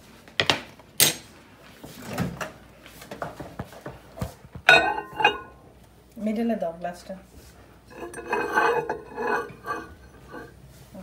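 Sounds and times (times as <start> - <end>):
ceramic mug knocking: 4.7 - 5.5
mug tapping and rattling: 4.7 - 5.5, 7.9 - 10.5
mug clinking on glass turntable: 4.7 - 5.6, 7.9 - 10.5.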